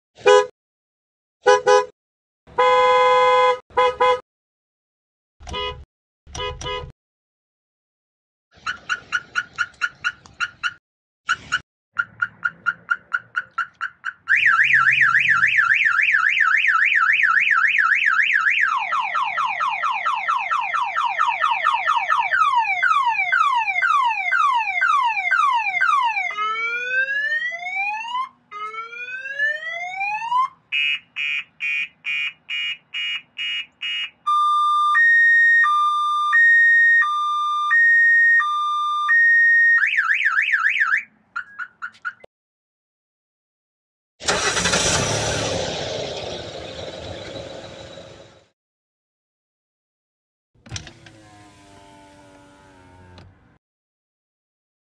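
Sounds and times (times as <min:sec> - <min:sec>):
car alarm siren: 0:12.0 - 0:42.3, 0:44.3 - 0:45.0.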